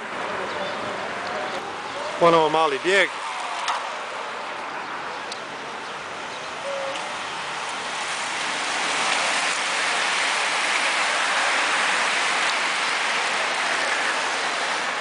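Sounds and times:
bicycle tyres hissing on wet road: 6.1s - 15.0s.

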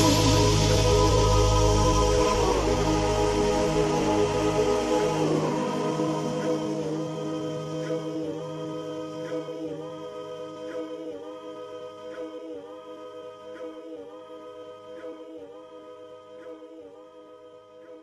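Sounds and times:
sustained music chord: 0.0s - 10.2s.

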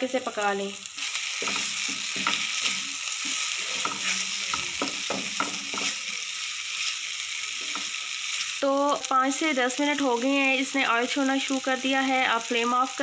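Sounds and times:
tomato sauce sizzling in oil: 0.0s - 13.0s
spoon stirring and scraping pan: 1.0s - 8.6s.

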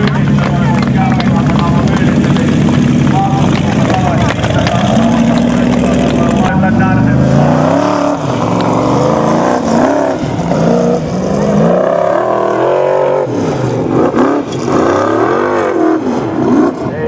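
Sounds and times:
buggy engine revving hard: 0.0s - 17.0s.

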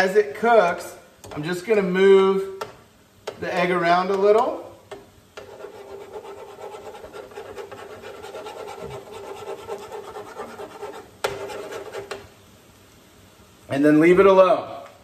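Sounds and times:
spatula scraping a skillet: 5.3s - 12.3s.

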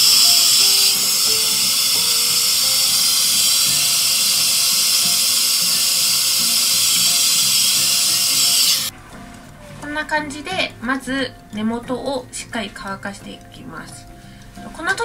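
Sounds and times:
hair dryer blowing with high hiss: 0.0s - 8.9s
soft background music: 0.0s - 15.0s.

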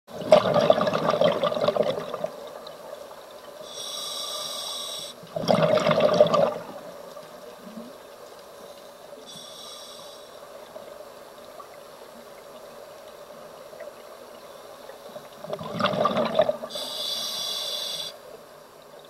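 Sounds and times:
exhaled bubbles bursting: 0.1s - 2.4s, 5.3s - 6.9s, 15.4s - 16.7s
regulator hissing on inhale: 3.6s - 5.3s, 8.6s - 10.8s, 16.6s - 18.4s.

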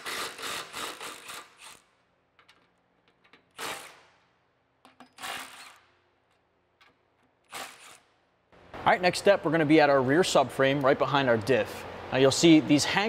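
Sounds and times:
impact wrench spinning: 0.0s - 2.6s, 3.4s - 4.3s, 4.9s - 6.1s, 7.3s - 8.2s.

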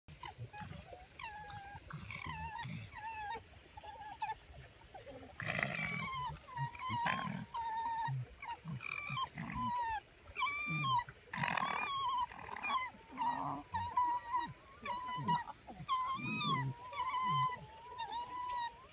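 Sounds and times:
fox whining calls: 5.4s - 18.9s.

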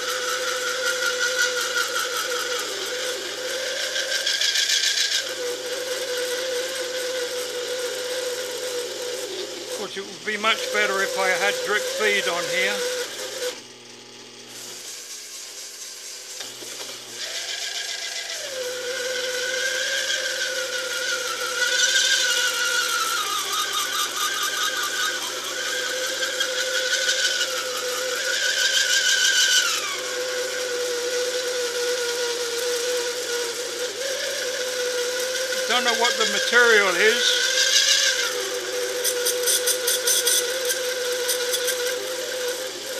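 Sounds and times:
lathe whine: 0.0s - 42.9s
tool scraping steel hiss: 14.5s - 18.3s, 35.5s - 42.6s.

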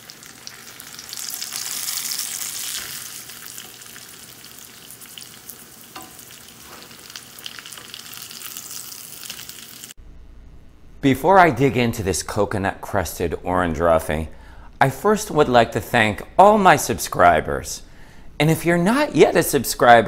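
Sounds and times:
fish frying in oil: 0.0s - 10.0s.

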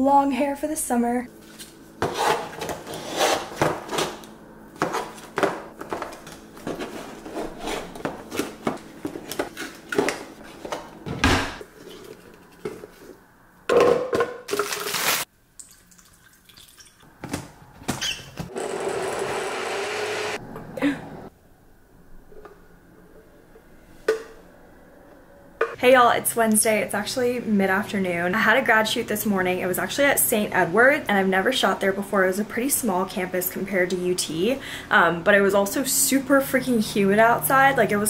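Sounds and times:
personal blender running: 18.5s - 21.0s.

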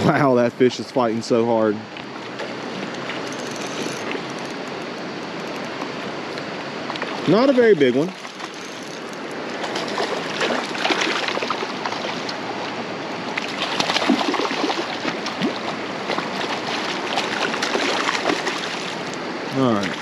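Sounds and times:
creek water rushing: 0.0s - 20.0s
fish splashing at water surface: 8.0s - 12.4s, 13.3s - 19.1s.

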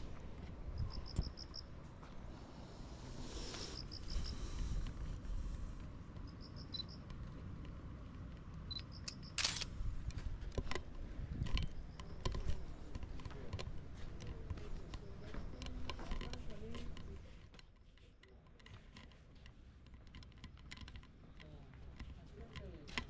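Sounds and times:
small clicks: 6.2s - 9.7s
camera shutter click: 9.1s - 9.7s.

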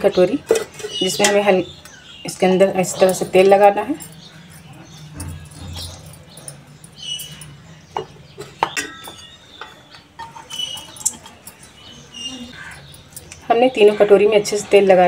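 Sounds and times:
small metallic clinks: 2.8s - 13.8s.

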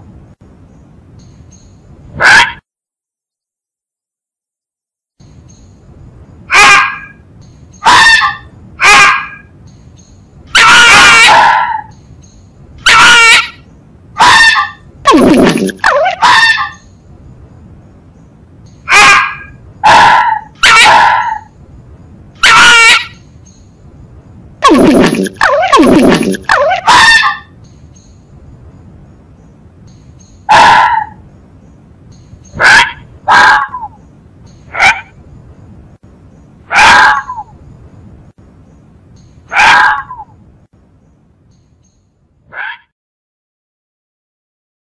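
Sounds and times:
fox calling: 2.2s - 2.6s, 7.8s - 9.5s, 10.6s - 12.0s, 12.8s - 13.6s, 14.2s - 16.8s, 18.9s - 21.5s, 22.4s - 23.2s, 24.6s - 27.5s, 30.5s - 31.2s, 32.5s - 34.0s, 34.7s - 35.1s, 36.7s - 37.5s, 39.5s - 40.3s, 42.5s - 42.9s.

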